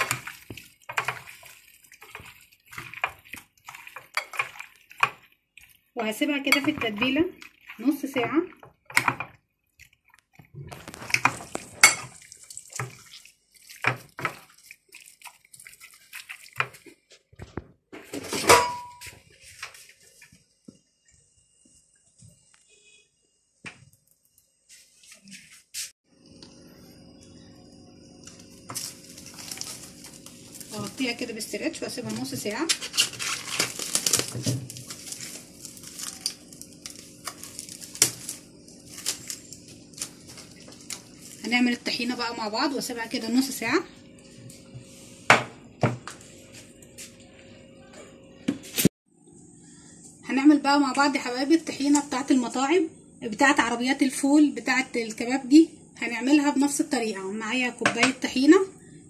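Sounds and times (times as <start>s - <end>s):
hands squishing fish in marinade: 0.0s - 17.3s, 28.6s - 31.2s, 31.9s - 41.5s
plastic cling film crinkling: 10.7s - 12.8s, 28.6s - 31.2s, 32.7s - 41.5s.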